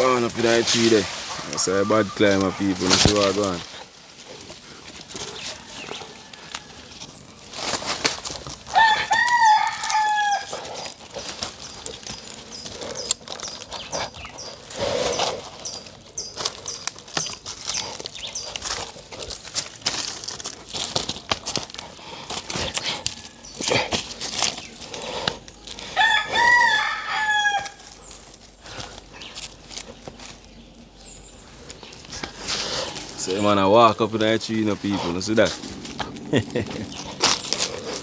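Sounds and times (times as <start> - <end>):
rooster crowing: 5.4 - 7.1, 8.7 - 10.8, 25.8 - 27.9.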